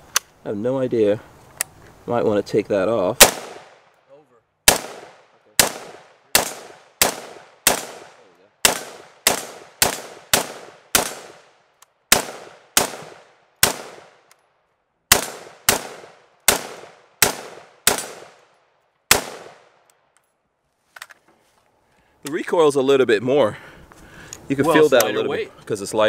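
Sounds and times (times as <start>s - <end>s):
rifle shots with echo: 3.2s - 3.9s, 4.7s - 14.3s, 15.1s - 19.8s.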